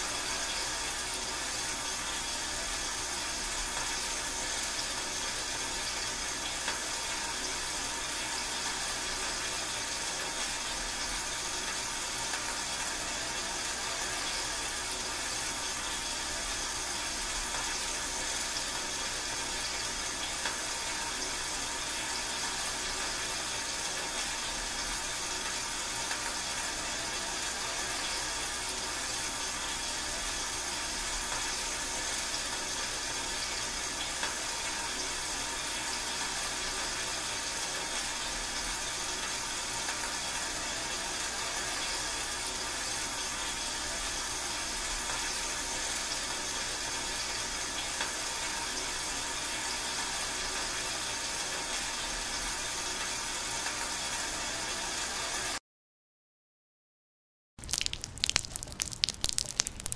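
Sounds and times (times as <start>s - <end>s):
steady rain: 57.6s - 59.9s.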